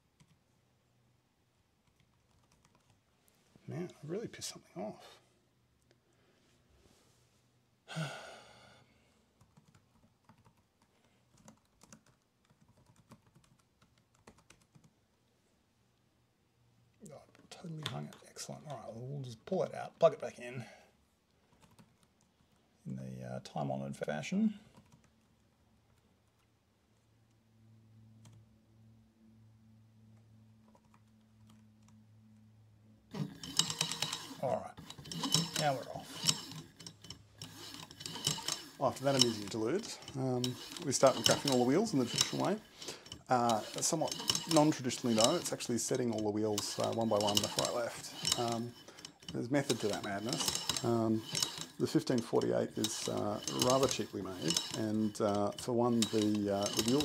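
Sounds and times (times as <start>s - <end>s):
person sighing: 7.9s - 8.8s.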